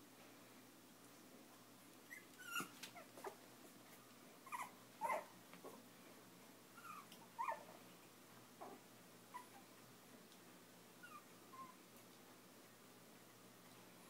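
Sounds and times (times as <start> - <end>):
puppies squeaking and yelping: 2.1 - 3.3, 4.4 - 5.3, 6.8 - 7.6.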